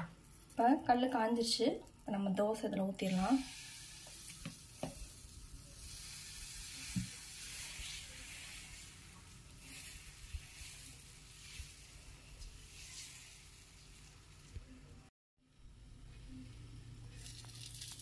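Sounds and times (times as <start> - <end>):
batter sizzling on griddle: 3.0 - 15.0, 17.1 - 18.0.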